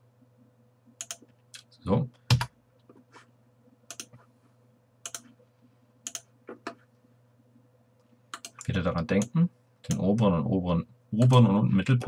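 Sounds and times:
faint electrical hum: 0.0s - 12.0s
computer mouse clicking: 1.0s - 1.7s, 3.9s - 4.2s, 5.0s - 5.4s, 6.0s - 6.8s, 8.3s - 10.3s.

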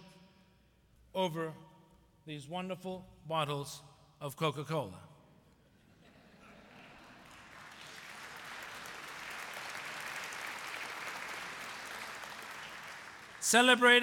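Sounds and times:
audience applauding: 6.8s - 14.0s.

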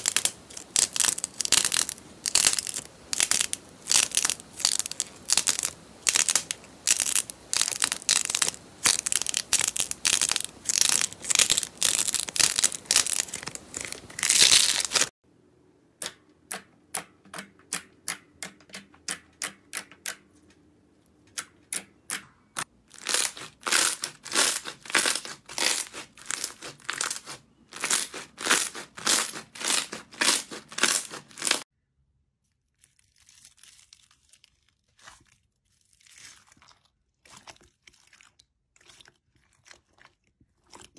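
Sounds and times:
slime popping: 0.0s - 15.1s
clay crackling: 0.0s - 15.2s, 15.9s - 31.7s.

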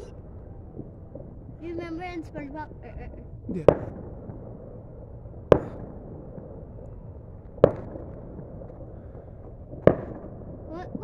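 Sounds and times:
fireworks bangs: 3.5s - 11.0s.

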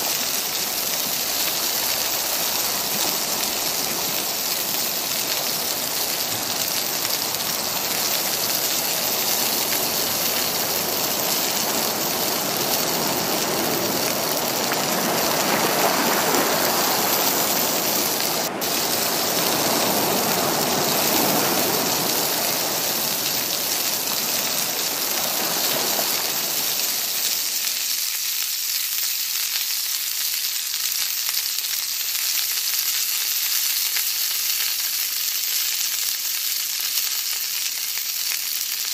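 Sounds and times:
low rushing noise: 0.8s - 27.6s
vegetables sizzling in a wok: 16.1s - 38.9s.

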